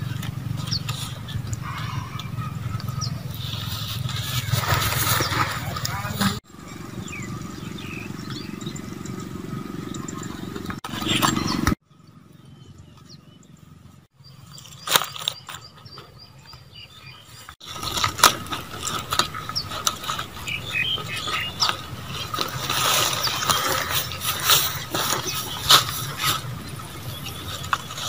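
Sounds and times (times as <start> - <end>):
dried leaves crackling and rustling: 2.3 - 6.4, 14.5 - 16.1, 17.6 - 28.0.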